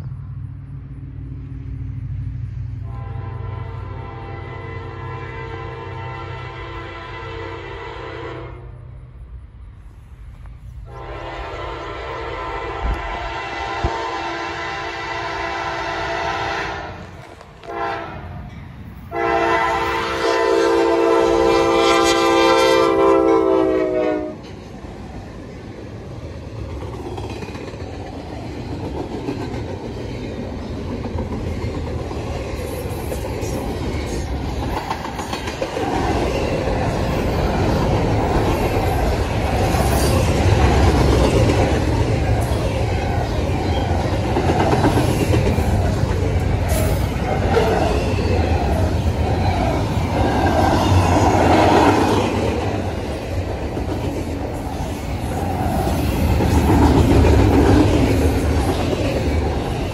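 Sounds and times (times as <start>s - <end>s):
train rumbling past: 0.0s - 59.9s
locomotive air horn: 2.8s - 8.9s, 10.9s - 18.4s, 19.1s - 24.4s
wheels clacking on rail joints: 26.2s - 59.9s.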